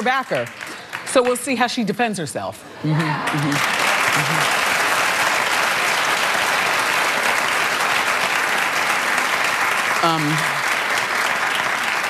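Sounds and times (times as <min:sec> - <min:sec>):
audience clapping: 0:00.0 - 0:01.8, 0:03.0 - 0:12.0.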